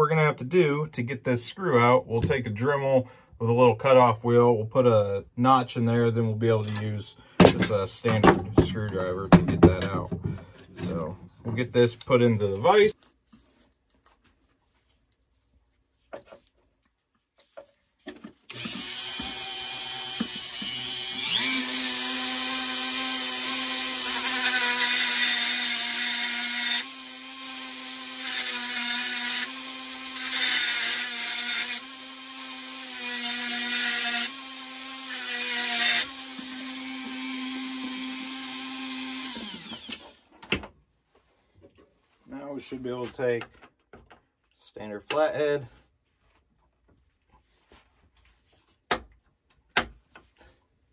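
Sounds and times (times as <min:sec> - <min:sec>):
cutoff wheel grinding metal: 0:18.5 - 0:40.2
rotary tool whining: 0:18.5 - 0:40.2.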